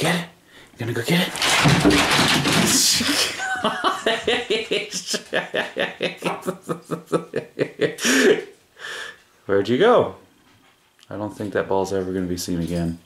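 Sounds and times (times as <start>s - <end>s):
person laughing: 3.0s - 8.5s.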